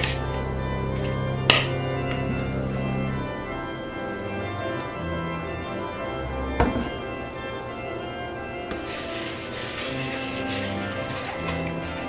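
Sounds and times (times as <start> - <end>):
slow held chords music: 0.0 - 12.0
sharp knock: 6.6 - 7.0.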